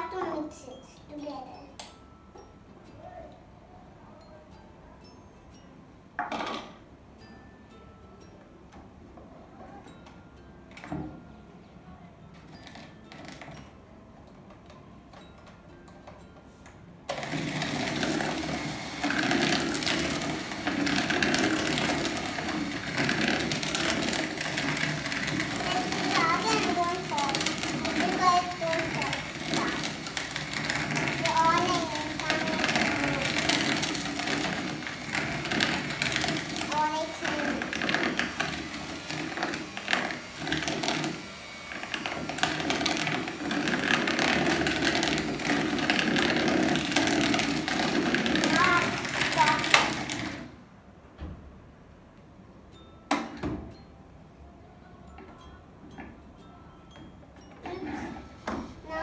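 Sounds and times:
beaters rattling against bowl: 0:17.1 - 0:41.0, 0:42.0 - 0:50.4
electric hand mixer running: 0:17.1 - 0:50.6.

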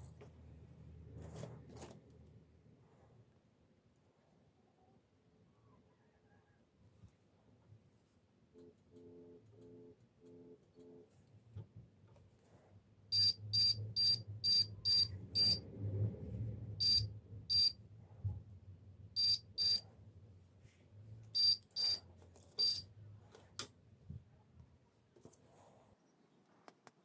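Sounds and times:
faint low hum: 0:00.0 - 0:27.0
high-pitched electronic beeps: 0:13.2 - 0:15.6, 0:16.8 - 0:17.8, 0:19.2 - 0:19.8, 0:21.4 - 0:22.0, 0:22.6 - 0:22.8.

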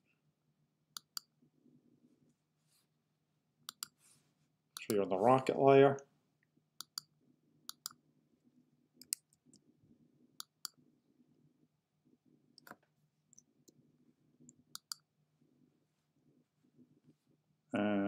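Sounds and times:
faint steady hum: 0:00.0 - 0:18.0
computer mouse clicking: 0:03.7 - 0:04.0, 0:06.8 - 0:07.1, 0:07.7 - 0:08.0, 0:09.0 - 0:09.6, 0:14.7 - 0:15.0.

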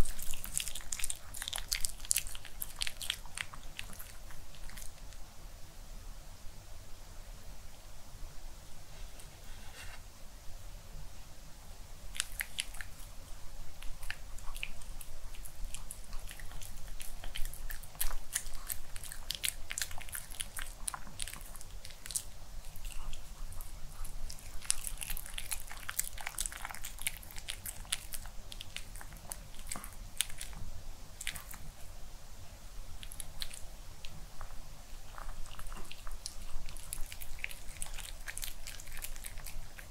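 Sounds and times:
dog crunching food: 0:00.0 - 0:05.2, 0:12.1 - 0:13.2, 0:13.8 - 0:30.6, 0:31.2 - 0:31.7, 0:33.0 - 0:39.9.

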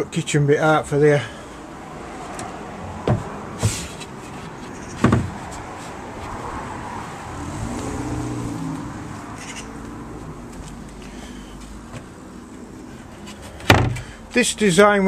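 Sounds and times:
passing car hum: 0:01.5 - 0:14.3
hard knock of wooden panel: 0:03.0 - 0:03.3, 0:05.0 - 0:05.3, 0:13.7 - 0:14.0.

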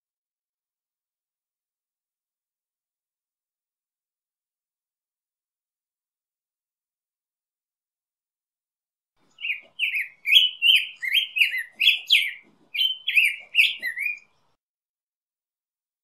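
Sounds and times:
bird singing: 0:09.2 - 0:14.6.

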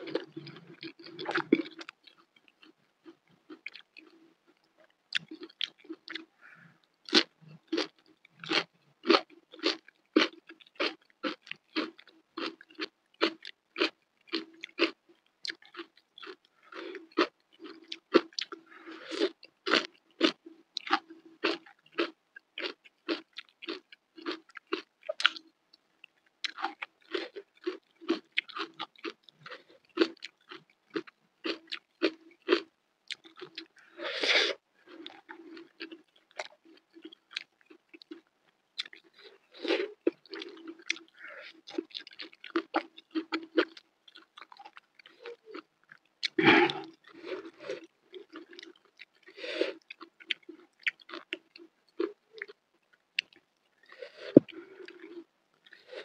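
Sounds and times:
crisp wet chewing: 0:34.8 - 0:56.0.

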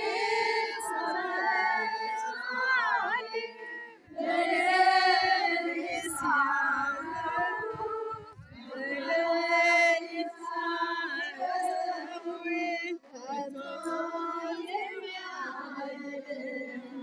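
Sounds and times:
group of voices chanting: 0:00.0 - 0:11.8.

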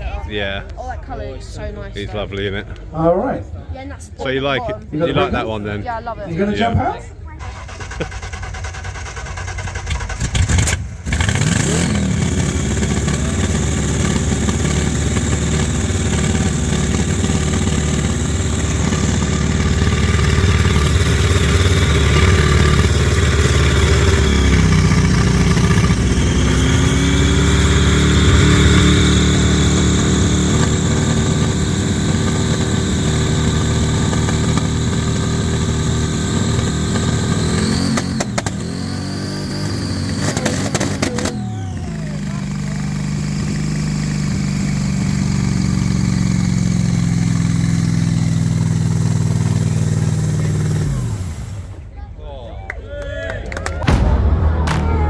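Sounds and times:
supercharged engine running loud: 0:07.9 - 0:51.8.

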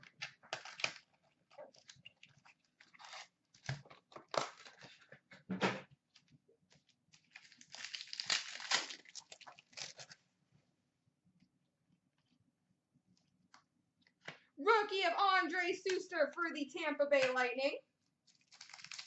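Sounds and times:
foil wrapper crinkling and tearing: 0:00.0 - 0:05.1, 0:06.8 - 0:10.2, 0:18.2 - 0:19.0
taps and rustles of foil packs: 0:18.3 - 0:19.0.

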